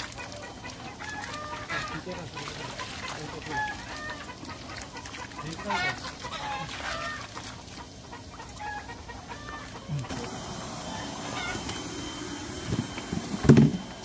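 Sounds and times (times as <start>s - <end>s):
net dragged through water: 0.0s - 9.6s
water splashing: 0.0s - 14.0s.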